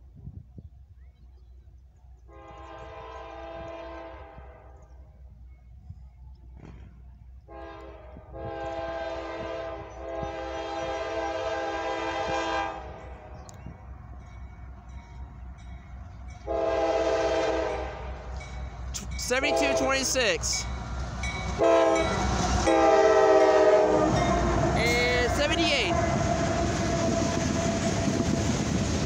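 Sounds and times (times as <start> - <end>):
train rumble: 0.0 - 29.0
locomotive air horn blasts: 2.3 - 4.8, 7.5 - 13.2, 16.4 - 18.2, 19.4 - 20.1, 21.5 - 28.4.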